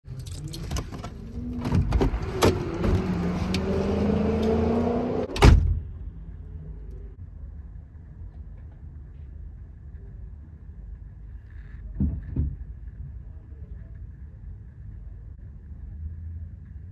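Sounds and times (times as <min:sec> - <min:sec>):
van door slamming: 0:05.3 - 0:05.8
knocks and rustling: 0:11.9 - 0:13.2.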